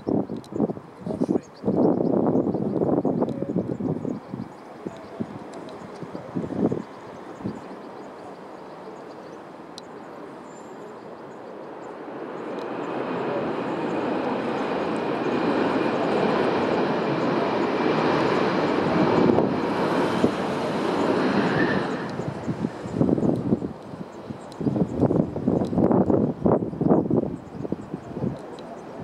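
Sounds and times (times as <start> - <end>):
jet engines rolling: 0.0 - 29.0.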